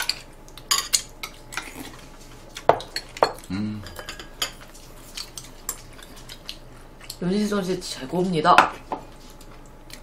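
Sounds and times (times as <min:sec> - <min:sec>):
utensils clinking on bowls: 0:02.7 - 0:05.8
person humming: 0:03.4 - 0:04.0.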